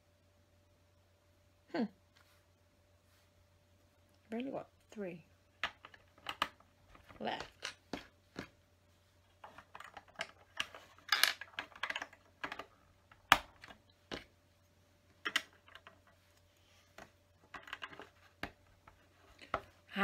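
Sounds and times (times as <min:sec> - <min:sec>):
plastic bricks clicking and tapping: 0:05.6 - 0:08.5, 0:09.3 - 0:14.3, 0:15.2 - 0:16.2, 0:17.0 - 0:19.8.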